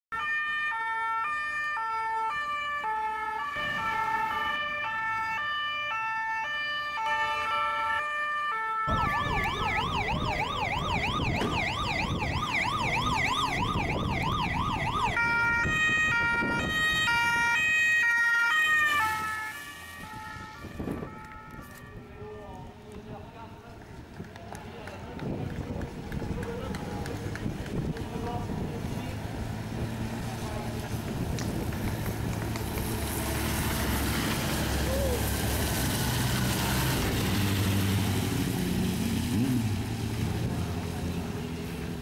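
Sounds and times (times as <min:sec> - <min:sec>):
yelp siren: 0:00.1 - 0:22.6
two-tone sirens: 0:00.1 - 0:23.0.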